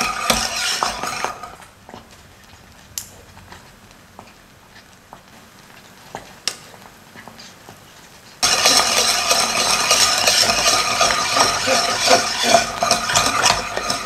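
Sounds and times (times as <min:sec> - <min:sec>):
wire whisk scraping a pan: 0:00.0 - 0:02.7, 0:05.6 - 0:14.0
caramel bubbling in a saucepan: 0:00.0 - 0:14.0.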